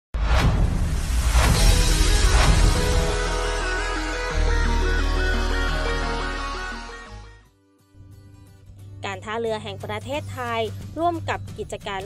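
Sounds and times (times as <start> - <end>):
whoosh: 0.2 - 4.2.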